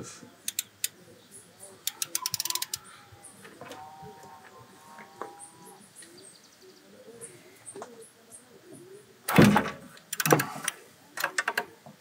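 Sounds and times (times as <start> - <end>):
socket ratchet clicking: 0.5 - 1.0, 1.9 - 2.8, 10.1 - 10.5.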